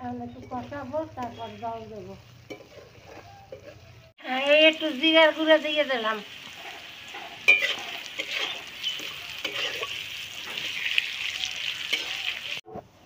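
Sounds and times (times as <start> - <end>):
food sizzling in hot oil: 0.3 - 12.6
metal spatula scraping pan: 2.4 - 3.9, 7.1 - 11.1, 11.8 - 12.3.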